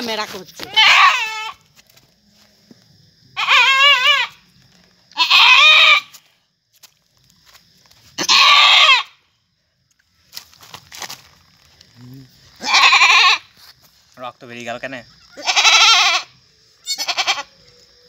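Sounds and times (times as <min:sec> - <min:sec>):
goat bleating: 0:00.7 - 0:01.6, 0:03.4 - 0:04.3, 0:05.2 - 0:06.1, 0:08.2 - 0:09.1, 0:12.6 - 0:13.5, 0:15.3 - 0:17.5.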